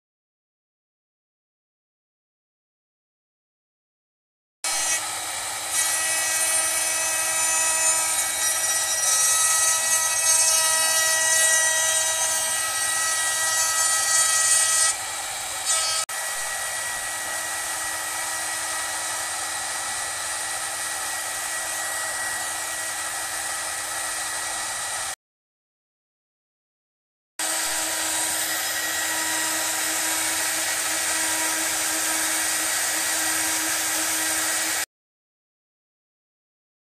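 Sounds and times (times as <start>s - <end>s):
router spindle whine cutting wood: 4.7s - 25.2s, 27.4s - 34.9s.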